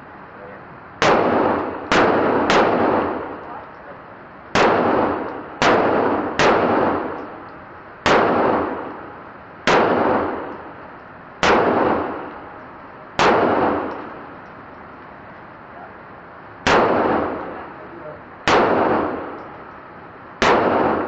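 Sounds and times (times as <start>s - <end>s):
pistol shots echoing indoors: 1.0s - 3.5s, 4.5s - 7.4s, 8.0s - 10.8s, 11.4s - 12.6s, 13.2s - 14.4s, 16.6s - 17.8s, 18.5s - 19.6s, 20.4s - 21.0s.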